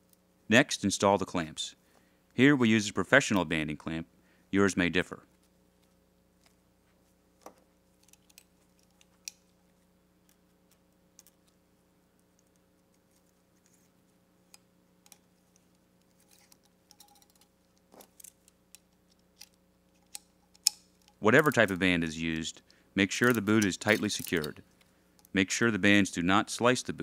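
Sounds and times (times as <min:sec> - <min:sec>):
faint steady hum: 0:00.0 - 0:27.0
light metal clicks and ticks: 0:22.6 - 0:25.4.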